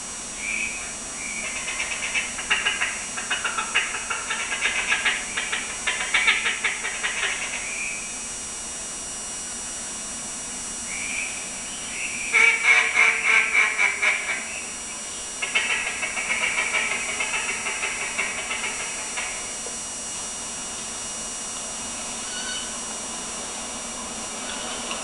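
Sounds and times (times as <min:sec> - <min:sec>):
ducks quacking: 0:01.3 - 0:07.9, 0:12.3 - 0:14.7, 0:15.4 - 0:19.8.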